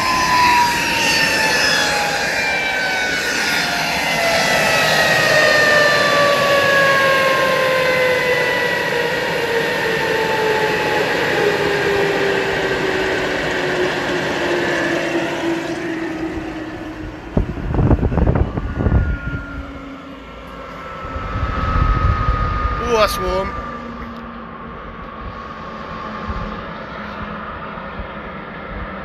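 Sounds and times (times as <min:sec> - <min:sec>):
turbojet whine falling in pitch: 0:00.0 - 0:28.9
low rumbling bursts: 0:16.1 - 0:28.1.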